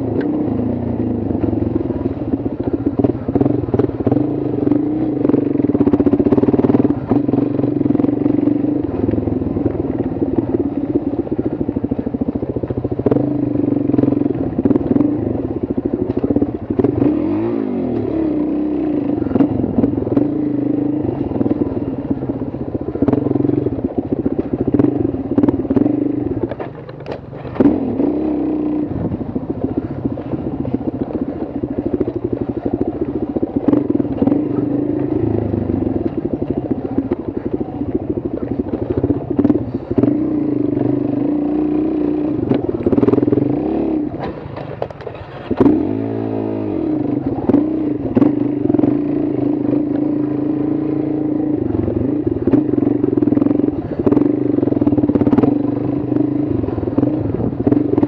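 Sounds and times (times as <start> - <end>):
engine running: 0.0 - 58.0
clicks and clatter: 26.3 - 27.7, 44.1 - 45.8.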